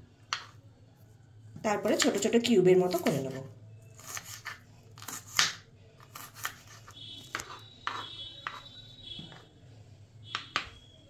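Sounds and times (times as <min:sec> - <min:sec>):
knife chopping on cutting board: 0:04.0 - 0:08.6.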